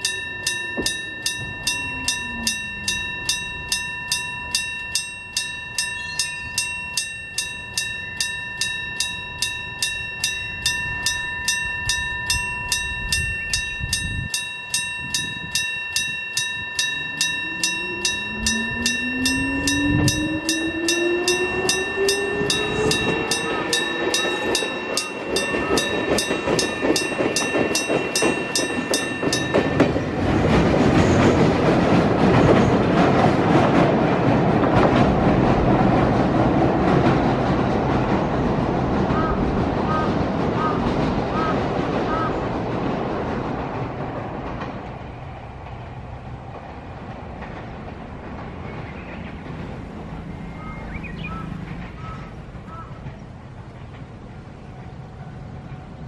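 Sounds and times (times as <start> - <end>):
level crossing bell ringing: 0.0 - 33.6
electric train whine: 0.0 - 56.0.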